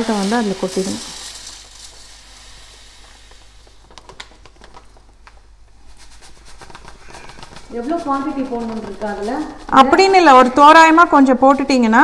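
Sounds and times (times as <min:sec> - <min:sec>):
salt granules pouring: 0:00.0 - 0:05.0.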